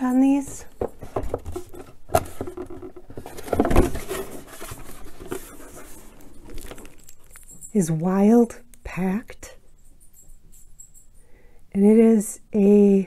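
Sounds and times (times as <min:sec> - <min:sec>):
cardboard box rustling and scraping: 0:00.6 - 0:07.1.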